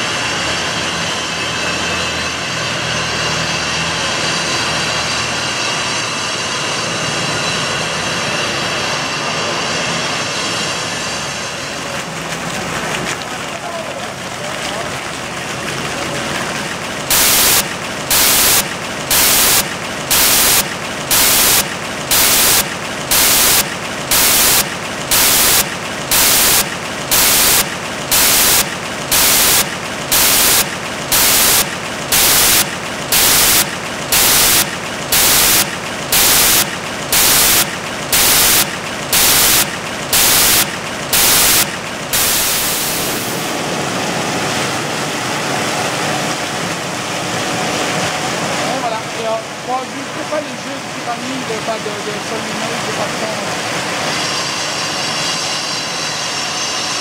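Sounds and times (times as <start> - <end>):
water splashing from fountain: 11.4 - 53.6
water jet hissing on and off: 17.1 - 43.6.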